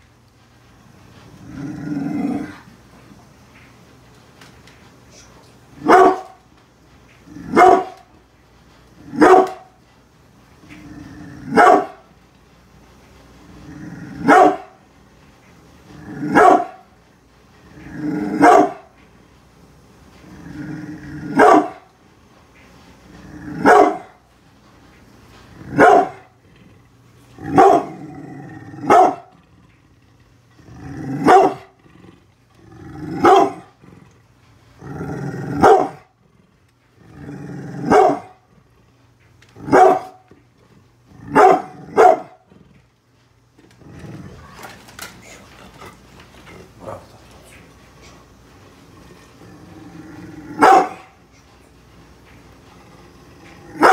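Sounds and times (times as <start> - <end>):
dog growling: 1.0 - 2.9, 7.2 - 8.0, 10.6 - 12.0, 13.4 - 14.8, 15.8 - 19.0, 20.1 - 22.0, 23.0 - 24.3, 25.3 - 51.5, 52.3 - 53.9
dog barking deeply: 5.8 - 6.4, 7.4 - 8.0, 9.1 - 9.7, 11.5 - 12.0, 14.2 - 14.8, 16.2 - 16.8, 18.3 - 18.9, 21.3 - 21.9, 23.6 - 24.2, 25.7 - 26.3, 27.4 - 28.0, 28.8 - 29.3, 31.1 - 31.8, 33.1 - 33.7, 35.5 - 36.1, 37.8 - 38.4, 39.6 - 40.2, 41.2 - 42.4, 50.6 - 51.1.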